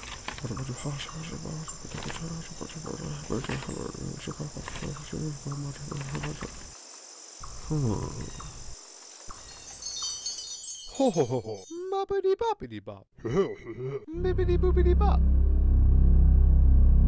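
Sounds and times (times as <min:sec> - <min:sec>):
crickets chirping: 0:00.0 - 0:12.2
low pulsing sounds: 0:14.2 - 0:17.0.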